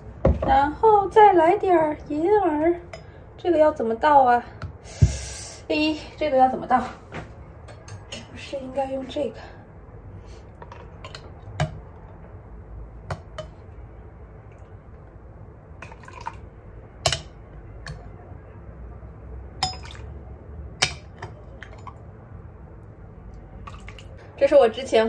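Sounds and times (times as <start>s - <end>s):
liquid pouring: 15.8s - 16.5s, 23.6s - 24.2s
metal ladle clinking on glass pot: 17.0s - 17.3s, 19.6s - 20.0s.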